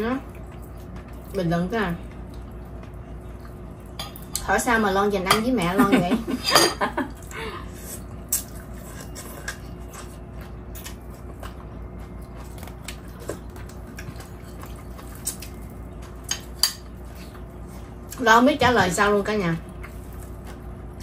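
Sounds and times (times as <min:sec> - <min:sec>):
steady low hum: 0:00.0 - 0:21.0
soft chewing: 0:00.2 - 0:04.4, 0:07.1 - 0:18.2, 0:19.6 - 0:21.0.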